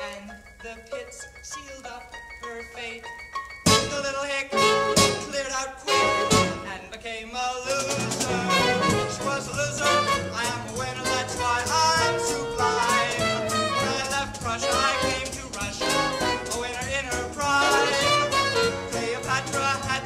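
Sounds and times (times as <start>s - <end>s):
brass band playing swing: 3.7s - 6.9s, 7.7s - 20.0s.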